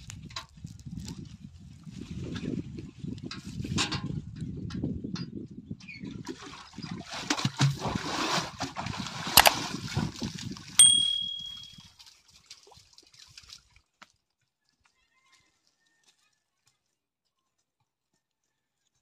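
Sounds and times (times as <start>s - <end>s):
bucket splashing in water: 6.3s - 10.6s
metallic clink: 10.8s - 11.8s.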